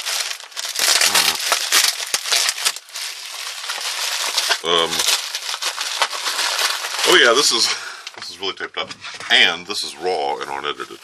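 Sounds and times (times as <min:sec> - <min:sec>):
bubble wrap crackling: 0:00.0 - 0:08.2, 0:10.3 - 0:11.0
person grunting: 0:01.0 - 0:01.4.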